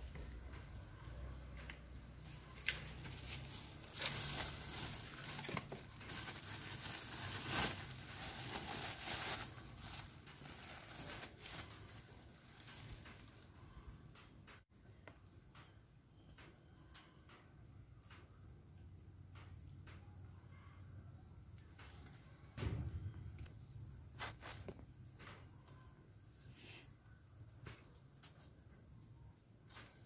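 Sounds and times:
plastic bag crinkling: 2.2s - 13.7s.

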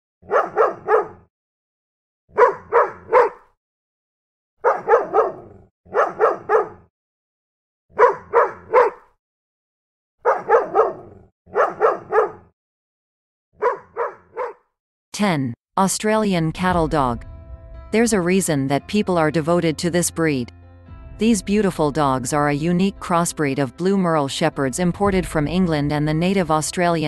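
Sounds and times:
dog barking sharply: 0.2s - 1.3s, 2.3s - 3.6s, 4.6s - 6.9s, 7.9s - 9.2s, 10.2s - 12.5s, 13.6s - 14.7s.

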